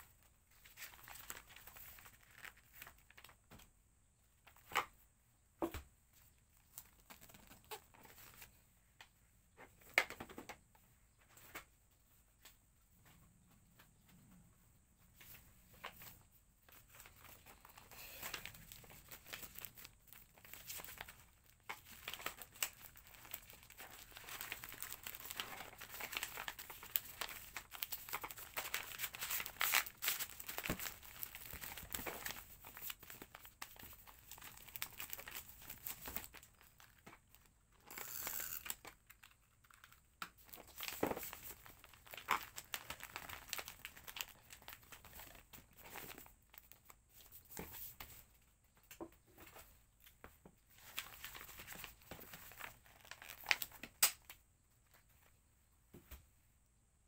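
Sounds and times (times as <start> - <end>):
packaging rustling and crinkling: 0.0 - 3.4, 15.7 - 48.2, 50.6 - 54.2
packaging tearing: 17.6 - 37.0, 37.8 - 45.4.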